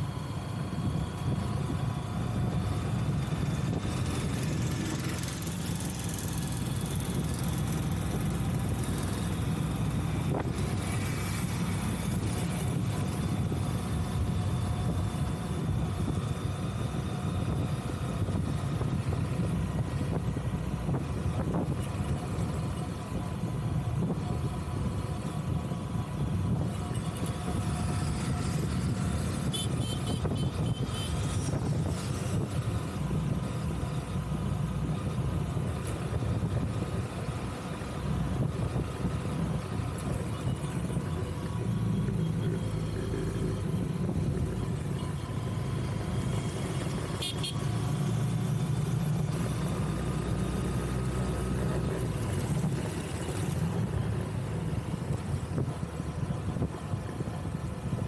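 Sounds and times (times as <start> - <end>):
vehicle road rumble: 0.0 - 58.0
wind on microphone: 0.1 - 47.1
vehicle horn toot: 29.5 - 31.2, 47.2 - 47.6.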